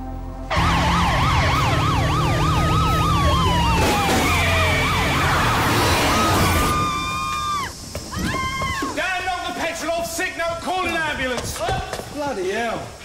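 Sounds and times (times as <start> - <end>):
vehicle engines rumbling: 0.2 - 6.8
police sirens: 0.5 - 7.7.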